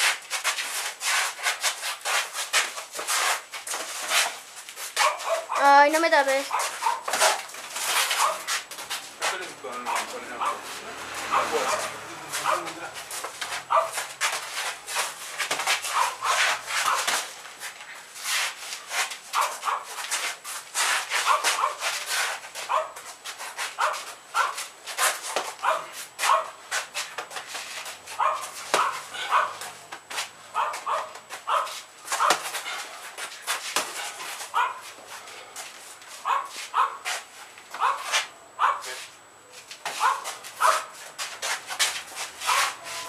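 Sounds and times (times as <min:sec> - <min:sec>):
high-pitched squeaks: 0:42.4 - 0:43.0.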